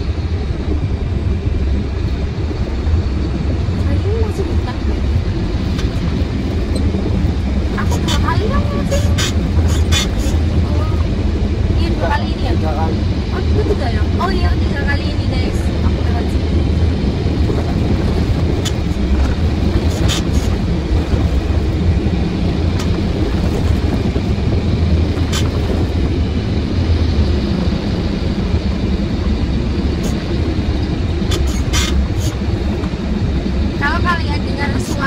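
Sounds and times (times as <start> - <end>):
truck engine and road rumble: 0.0 - 35.0.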